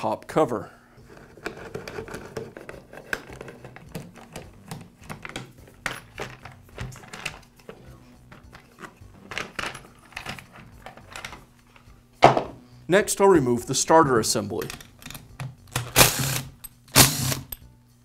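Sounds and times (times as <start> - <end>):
screwdriver turning screw: 14.6 - 17.6.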